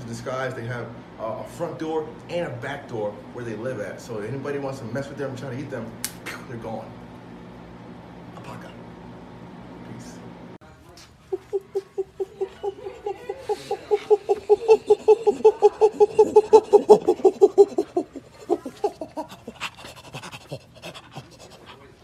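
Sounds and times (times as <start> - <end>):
chimpanzee pant-hoots: 11.2 - 21.7.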